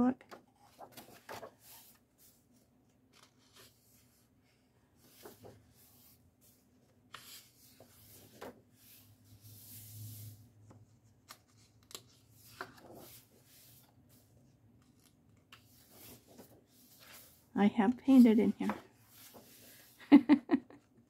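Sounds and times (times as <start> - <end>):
paper pages turning: 0.6 - 2.0, 3.0 - 4.1, 5.0 - 8.9, 11.1 - 14.2, 14.8 - 17.4, 18.2 - 19.9.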